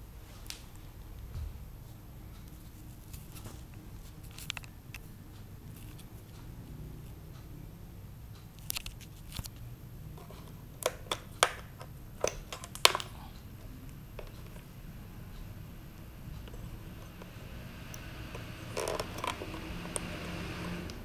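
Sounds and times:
clicks and taps handling multimeter: 8.6s - 9.6s, 10.2s - 13.1s.

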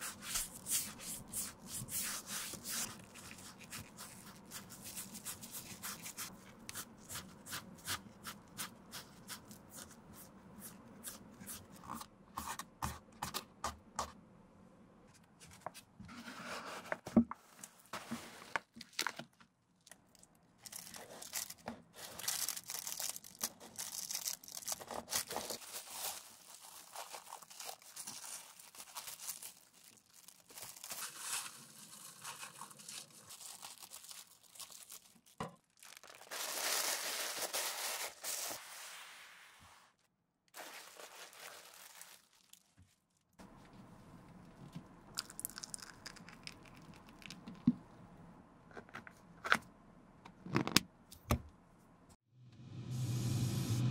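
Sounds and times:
plastic film rustling and crinkling: 0.0s - 6.6s, 20.6s - 39.4s, 40.6s - 43.3s.

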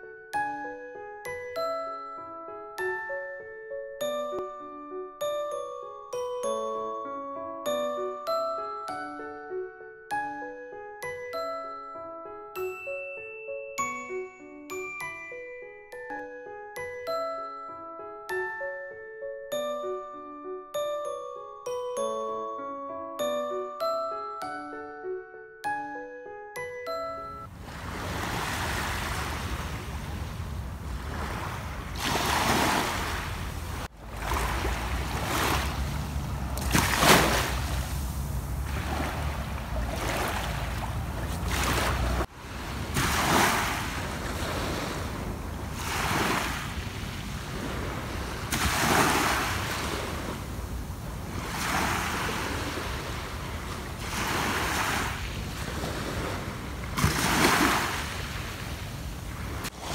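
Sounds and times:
wind rumble on microphone: 27.5s - 36.7s
small waves breaking on shore: 27.5s - 59.9s.

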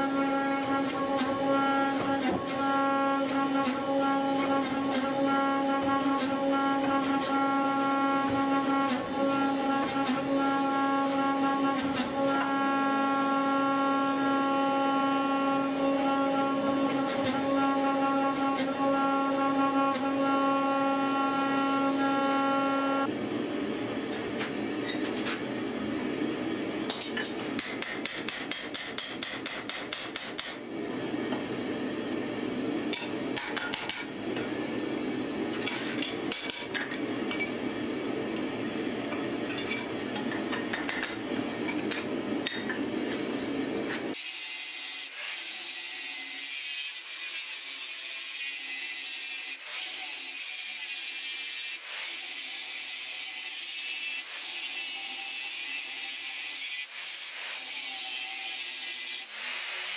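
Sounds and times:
hammer striking steel on anvil: 27.6s - 30.6s, 32.9s - 34.1s.

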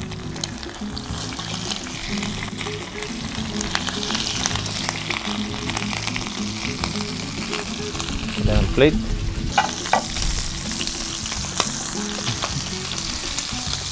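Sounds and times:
background music: 0.0s - 13.9s
shrimps sizzling in oil: 0.0s - 13.9s.

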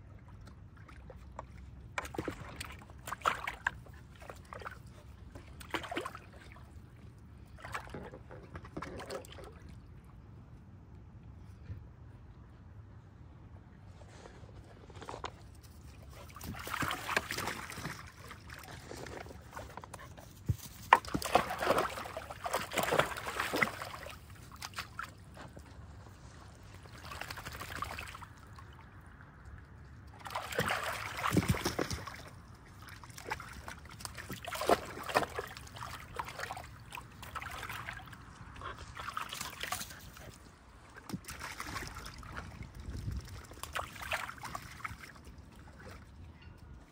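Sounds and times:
dog splashing in water: 0.8s - 6.9s, 16.0s - 25.2s, 26.7s - 28.8s, 30.2s - 46.0s.

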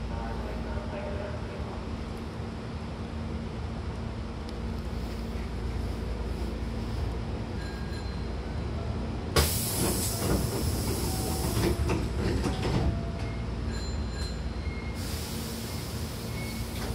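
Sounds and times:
low hum of stopped train: 0.0s - 16.9s
loud air hiss: 9.4s - 11.6s, 15.0s - 16.8s
train doors knocking shut: 9.4s - 13.0s.

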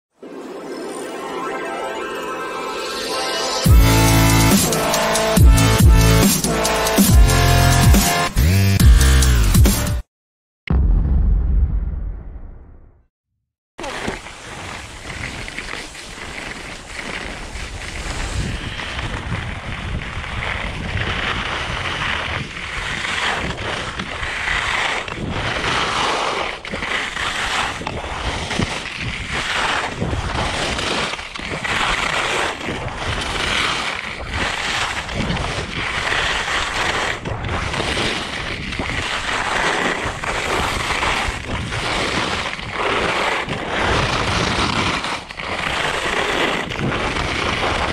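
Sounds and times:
skis scraping over snow: 13.8s - 47.9s
wind on microphone: 17.1s - 26.0s, 27.6s - 32.1s, 32.7s - 47.9s.

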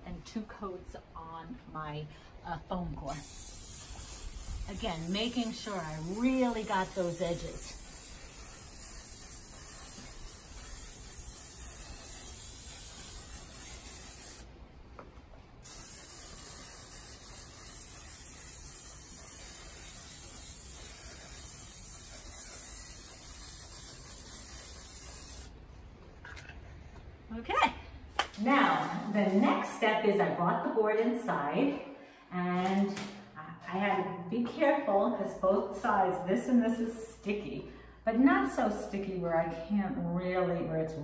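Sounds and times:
aerosol can hissing: 3.1s - 14.5s, 15.6s - 25.5s.

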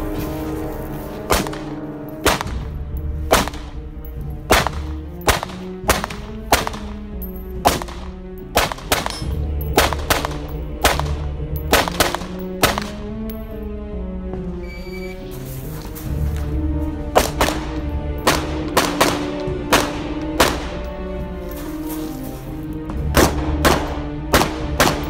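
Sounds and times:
background music: 0.0s - 25.0s
rifle shots: 1.3s - 3.8s, 4.5s - 7.0s, 7.6s - 13.0s, 17.2s - 20.9s, 23.2s - 25.0s.

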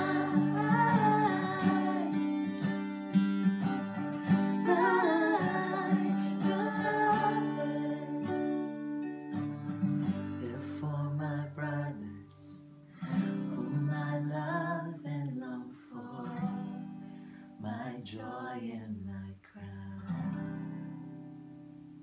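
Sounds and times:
person singing: 0.0s - 2.8s, 4.3s - 9.1s, 10.2s - 12.7s, 13.3s - 16.9s, 17.6s - 20.1s
acoustic guitar strumming: 0.0s - 15.2s, 16.0s - 17.6s, 20.0s - 22.0s.

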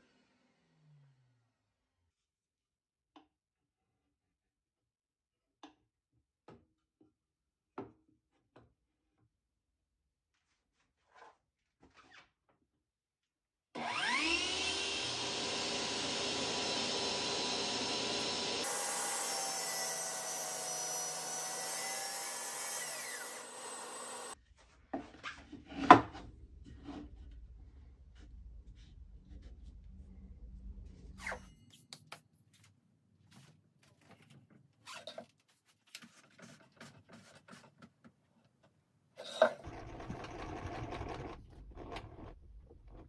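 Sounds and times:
table saw whining: 13.8s - 24.4s.

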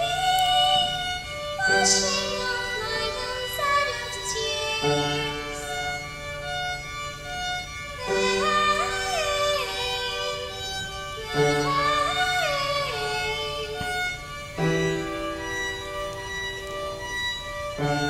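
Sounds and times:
violin playing: 0.0s - 18.0s.

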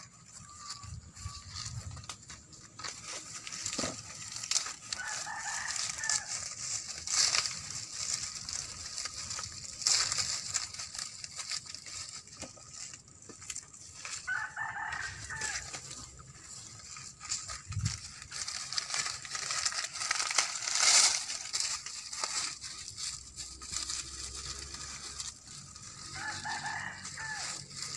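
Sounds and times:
dry corn husks rustling: 0.0s - 27.9s
rooster crowing: 4.7s - 6.5s, 14.2s - 16.0s, 26.0s - 27.9s.

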